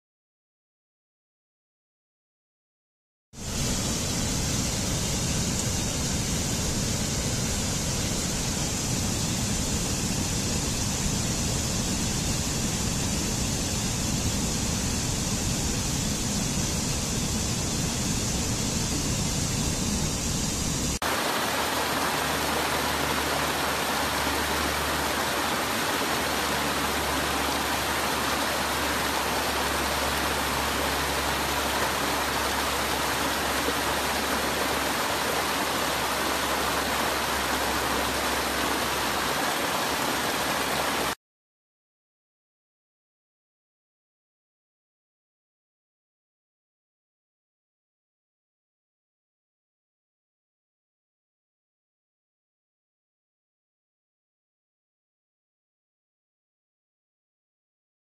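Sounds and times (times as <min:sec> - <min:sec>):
stream water rushing over rocks: 0:21.0 - 0:41.2.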